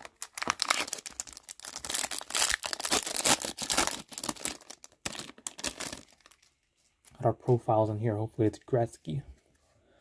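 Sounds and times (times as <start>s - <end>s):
wrapper crinkling and tearing: 0.0s - 7.0s.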